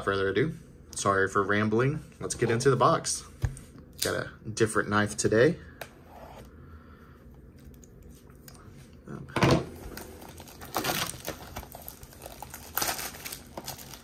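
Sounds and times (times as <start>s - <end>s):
plastic wrap crinkling and tearing: 9.8s - 14.0s.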